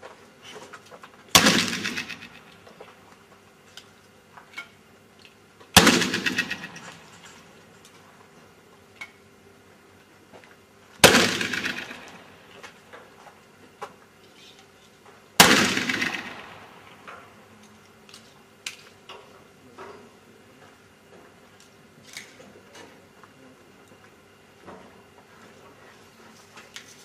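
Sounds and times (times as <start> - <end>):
pistol shots echoing: 1.4 - 2.5, 5.8 - 7.1, 11.0 - 12.4, 15.4 - 16.9.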